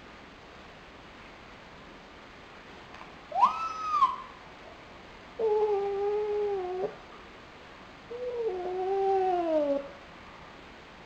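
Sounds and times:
raccoon dog calling: 3.3 - 4.4.

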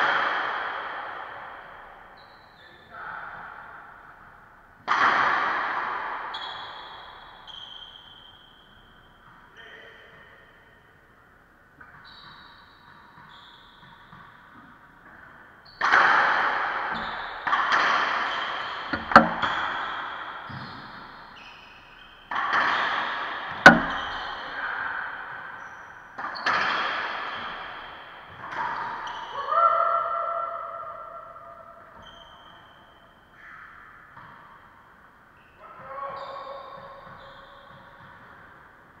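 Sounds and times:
sneakers squeaking on hardwood: 6.3 - 9.1, 11.8 - 16.1, 16.8 - 24.6, 32.0 - 33.1, 35.4 - 38.3
ball cracking off racquets and walls: 15.8 - 21.4, 22.3 - 24.4.

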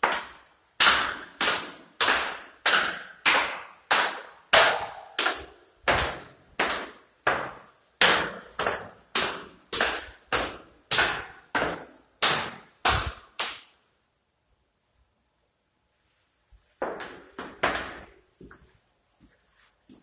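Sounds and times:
footsteps on hard floor: 16.6 - 20.0.

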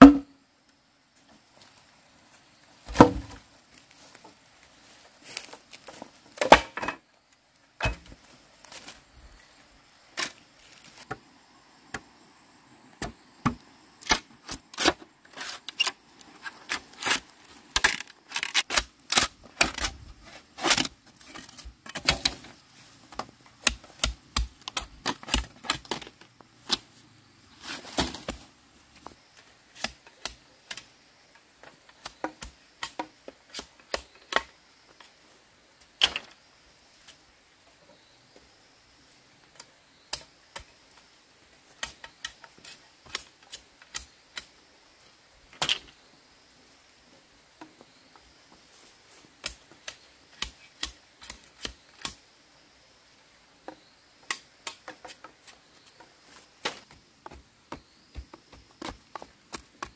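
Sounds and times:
bamboo poles and tools knocking: 0.0 - 0.4, 2.9 - 3.4, 5.8 - 7.0, 7.8 - 8.2, 29.8 - 35.1, 53.6 - 59.9.

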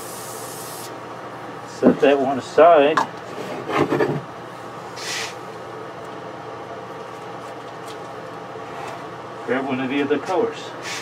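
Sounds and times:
exhaust fan humming: 0.0 - 11.0
brief hiss: 5.0 - 5.4.

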